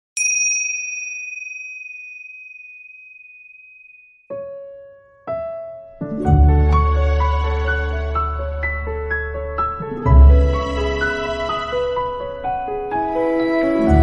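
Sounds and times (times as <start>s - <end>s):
high ringing note: 0.2s - 4.3s
piano notes: 4.3s - 14.0s
deep bass and chords: 9.8s - 11.2s.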